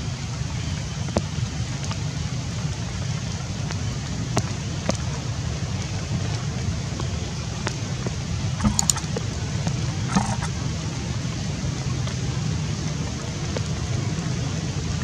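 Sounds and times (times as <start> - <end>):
faint clicks: 8.6 - 9.2.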